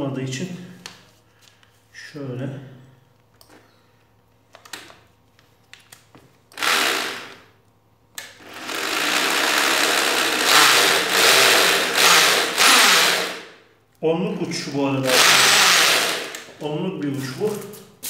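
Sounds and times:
electric drill boring into wood: 6.6 - 7.4, 8.4 - 13.5, 15.1 - 16.5.

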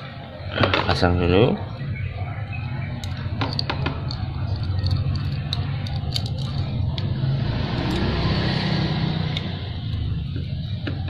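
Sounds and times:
saw chain clicking and rattling: 3.0 - 6.8.

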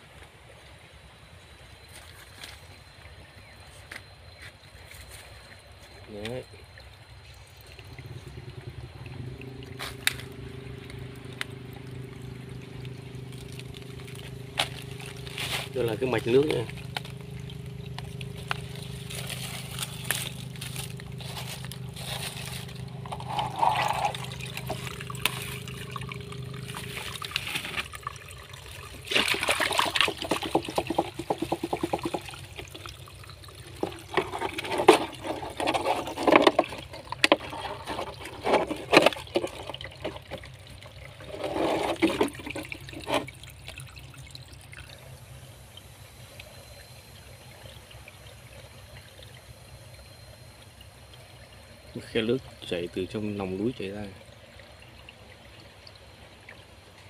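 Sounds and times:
water trickling into bottle: 5.6 - 45.1
water splashing: 6.2 - 45.2
plastic bottle handling: 18.2 - 28.0.

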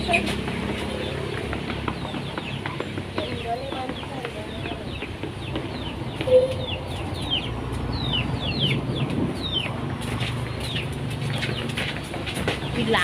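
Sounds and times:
birds chirping: 0.0 - 13.0
short lower bird call: 6.3 - 6.8.

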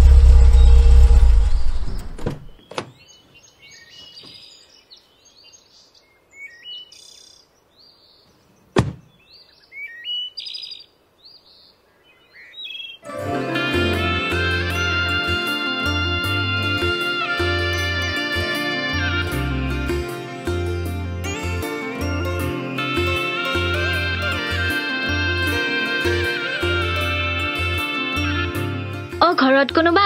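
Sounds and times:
birds chirping: 0.1 - 13.1
car door shutting: 1.6 - 3.0, 8.8 - 9.1
music: 13.0 - 30.0.

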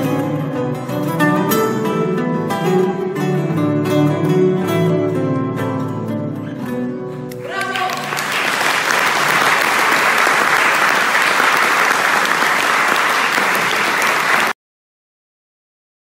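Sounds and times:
plucked lutes: 0.0 - 7.4
audience applause: 7.4 - 14.6.

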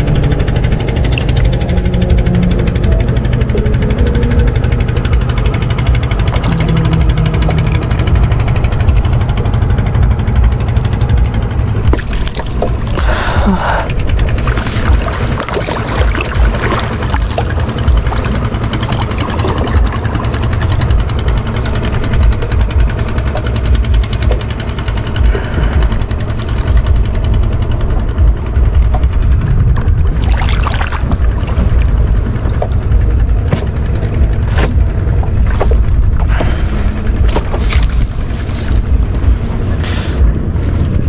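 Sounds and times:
wind buffeting microphone: 0.0 - 41.0
water splashes: 11.8 - 24.6, 29.8 - 41.0.

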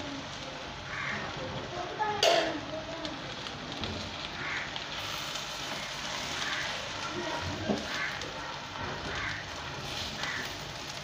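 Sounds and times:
food sizzling in a pan: 0.0 - 11.0
spatula stirring food: 3.3 - 11.0.

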